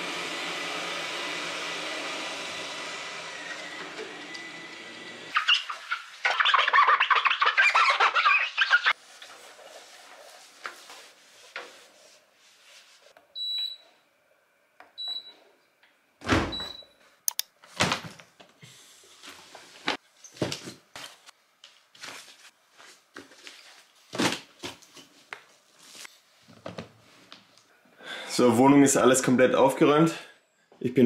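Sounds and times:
cloth wiping: 0:05.9 - 0:13.2.

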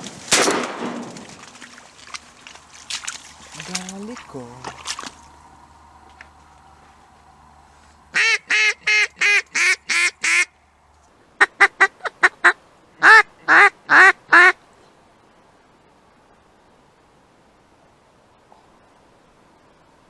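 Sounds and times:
duck quacking: 0:08.1 - 0:10.6, 0:11.4 - 0:14.6.

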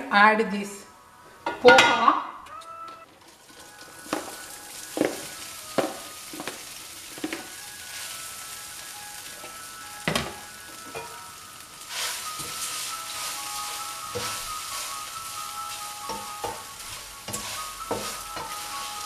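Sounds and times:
food sizzling in a pan: 0:03.1 - 0:19.0
container knocking on pan: 0:05.0 - 0:06.6.

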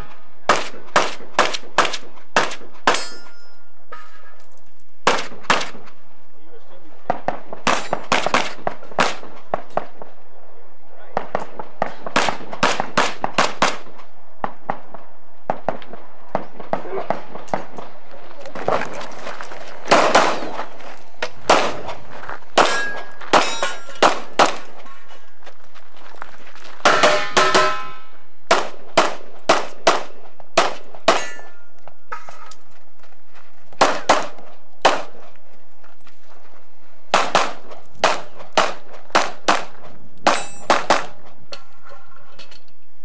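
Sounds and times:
pistol shots: 0:00.5 - 0:03.2, 0:05.0 - 0:05.9, 0:07.1 - 0:09.9, 0:11.1 - 0:14.0, 0:19.9 - 0:20.6, 0:21.4 - 0:22.0, 0:22.6 - 0:24.8, 0:28.5 - 0:31.6, 0:33.8 - 0:35.2, 0:37.1 - 0:41.3
steel targets clanging: 0:02.9 - 0:04.4, 0:22.6 - 0:24.2, 0:26.9 - 0:28.2, 0:31.1 - 0:32.5, 0:40.2 - 0:40.8.

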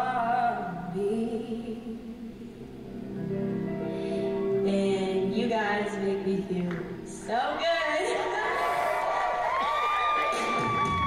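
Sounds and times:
woman singing soulful song: 0:00.0 - 0:02.6.

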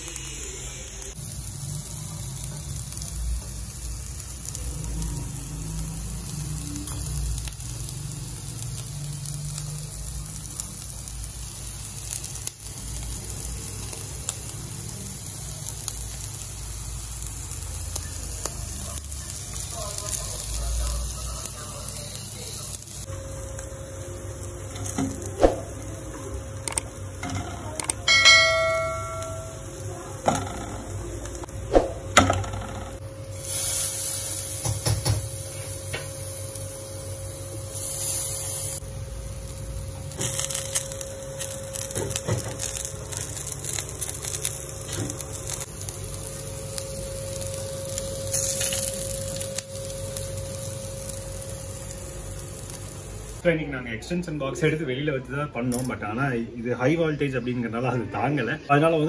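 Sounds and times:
chicken sizzling on grill: 0:00.0 - 0:55.8
bell-like metallic ring: 0:28.1 - 0:29.7.

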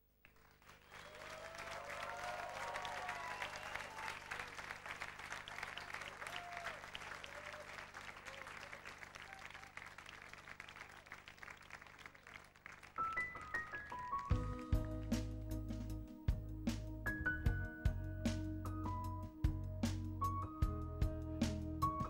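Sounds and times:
audience applauding and cheering: 0:00.3 - 0:15.4.

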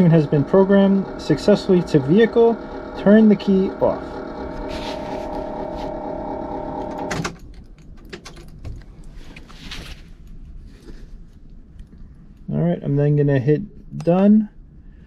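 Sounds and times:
electrical hum: 0:00.0 - 0:15.0
handling rustles: 0:08.5 - 0:12.4.

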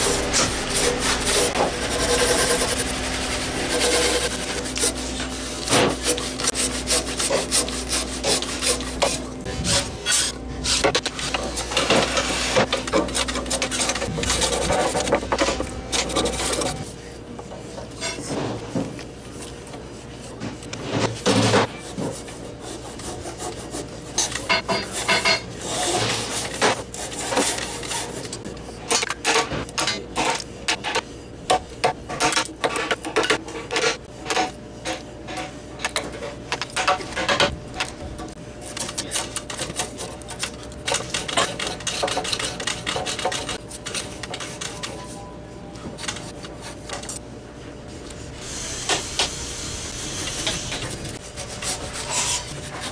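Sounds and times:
chisel and plane on wood: 0:00.0 - 0:09.3, 0:10.1 - 0:16.9, 0:21.0 - 0:28.4, 0:38.7 - 0:44.6, 0:50.4 - 0:52.9.

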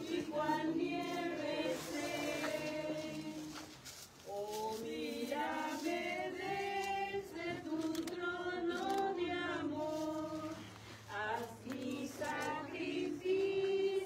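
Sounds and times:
congregation singing a hymn: 0:00.0 - 0:14.0.

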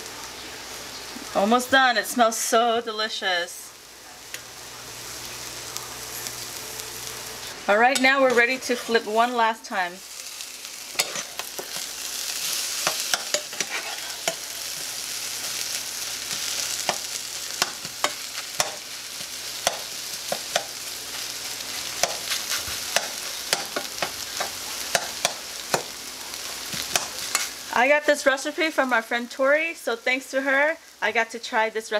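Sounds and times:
eggs sizzling in a pan: 0:00.0 - 0:31.9
spatula scraping a pan: 0:10.2 - 0:27.6.

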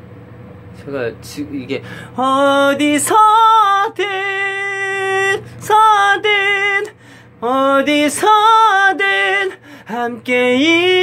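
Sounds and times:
singer breathing: 0:01.8 - 0:02.2, 0:06.9 - 0:07.4, 0:09.5 - 0:10.0
man singing a slow ballad: 0:02.0 - 0:11.0.

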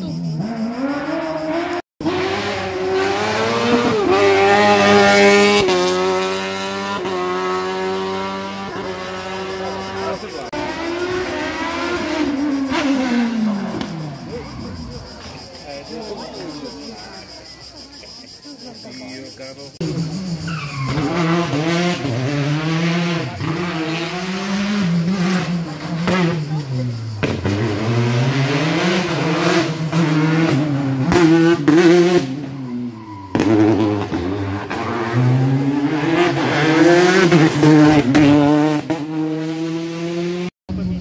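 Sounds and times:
racing car engine revving: 0:00.3 - 0:15.4, 0:19.8 - 0:41.0.

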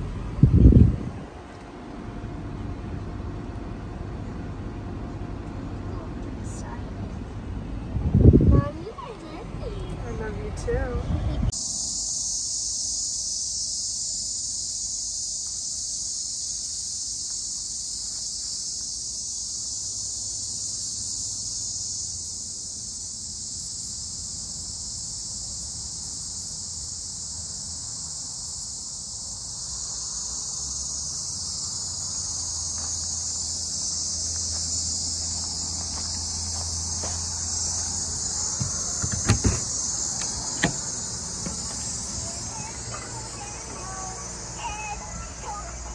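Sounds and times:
high-pitched insect chorus: 0:11.5 - 0:45.9
sharp knocks: 0:38.6 - 0:41.8.

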